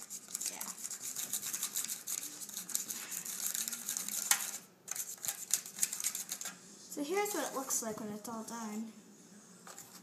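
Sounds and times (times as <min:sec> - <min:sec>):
stirring and scraping in plastic container: 0:00.0 - 0:06.6.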